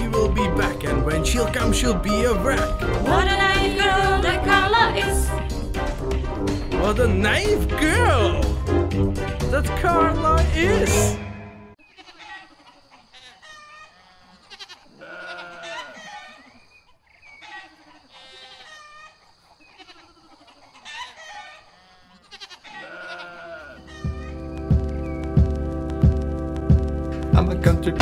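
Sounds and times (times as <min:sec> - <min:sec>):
livestock bleating: 0:11.8 - 0:16.6, 0:17.4 - 0:24.3
music with heavy beat: 0:24.1 - 0:28.0.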